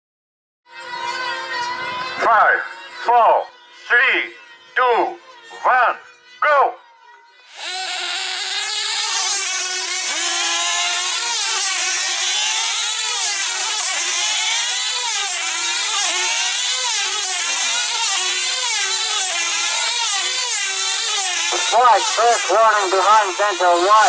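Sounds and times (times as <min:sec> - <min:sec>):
model diesel engines whining: 0:21.5 - 0:24.0.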